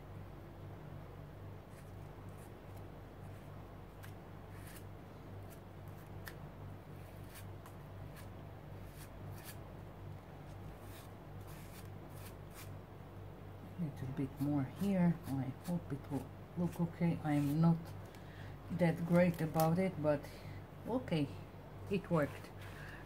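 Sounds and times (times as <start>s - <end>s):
steady low hum: 0.0s - 23.0s
palette knife scraping: 1.7s - 9.6s, 10.5s - 12.8s.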